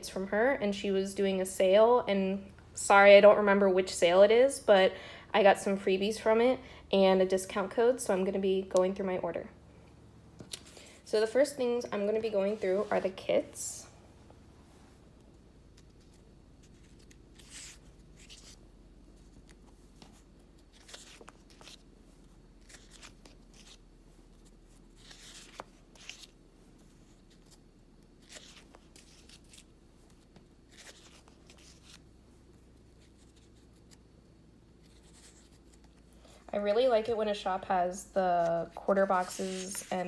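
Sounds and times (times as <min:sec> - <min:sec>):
paper sheets rustling: 0:15.7 - 0:18.6, 0:19.2 - 0:21.8, 0:22.6 - 0:27.6, 0:28.2 - 0:32.0, 0:34.8 - 0:36.1, 0:38.4 - 0:40.0.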